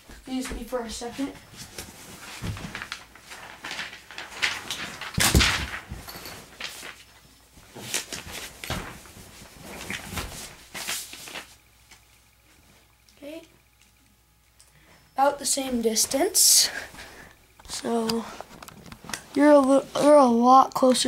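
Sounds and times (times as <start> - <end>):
paper target knocks and rustles: 2.4 - 7.0, 7.8 - 9.1.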